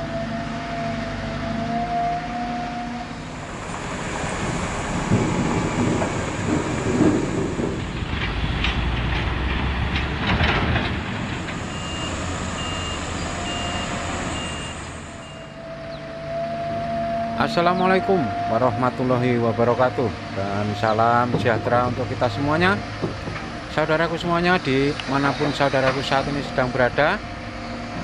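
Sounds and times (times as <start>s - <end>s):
heavy machinery engine rumble: 0.0s - 28.0s
knocks and rattles: 5.0s - 11.5s, 23.0s - 23.6s
reversing alarm beeping: 11.4s - 19.9s.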